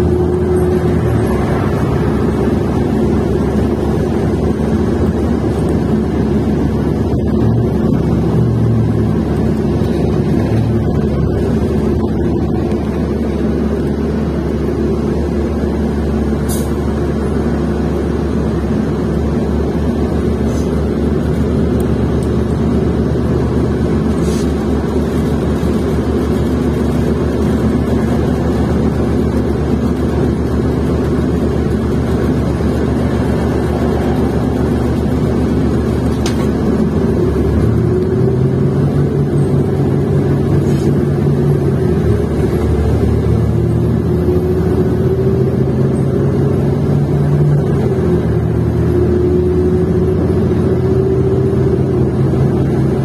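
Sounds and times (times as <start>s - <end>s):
bus engine running: 0.0s - 53.0s.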